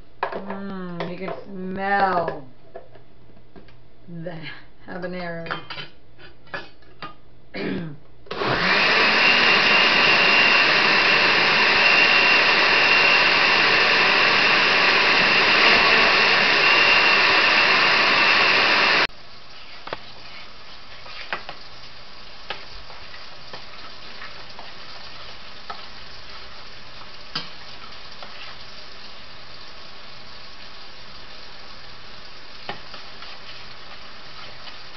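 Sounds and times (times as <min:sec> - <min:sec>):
blender running: 0:08.3 - 0:19.1.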